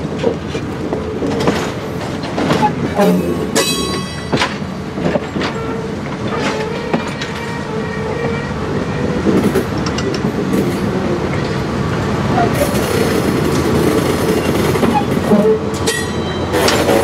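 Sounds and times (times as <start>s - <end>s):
train wheels rumbling on rail: 0.0s - 17.0s
knocks and clicks over track: 0.1s - 7.6s, 9.2s - 11.6s, 12.5s - 17.0s
wheel squeal: 14.8s - 17.0s.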